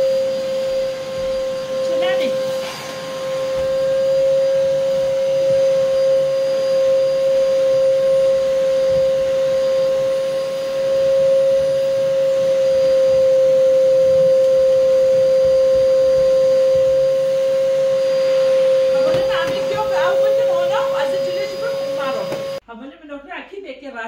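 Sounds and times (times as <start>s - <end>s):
vacuum cleaner running: 0.0s - 22.6s.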